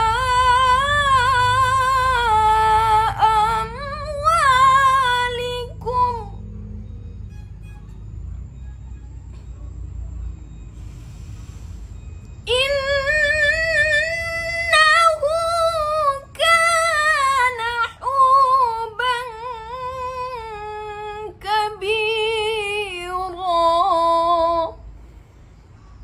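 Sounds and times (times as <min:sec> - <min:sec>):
woman reciting melodically: 0:00.0 - 0:06.5, 0:12.4 - 0:24.9.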